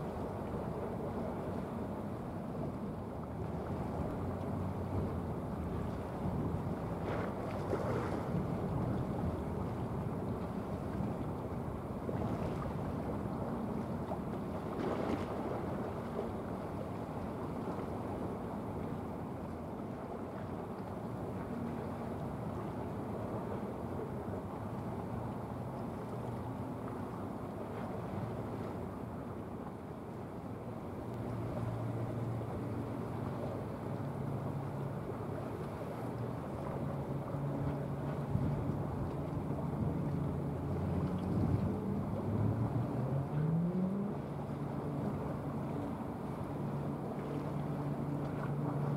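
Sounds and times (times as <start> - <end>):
water rushing at bow: 0.0 - 48.9
ship diesel engine drone: 21.2 - 48.9.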